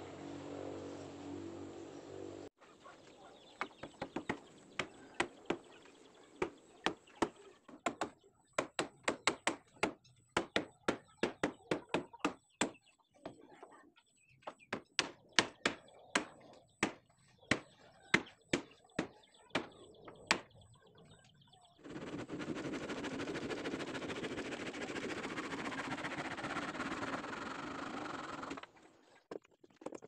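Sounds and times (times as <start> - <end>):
handsaw cutting wood: 22.0 - 28.6.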